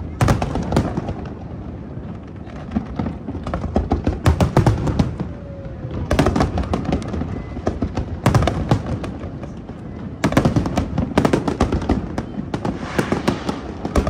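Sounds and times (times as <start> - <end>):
fireworks bangs and crackles: 0.0 - 14.0
low rumble: 12.6 - 14.0.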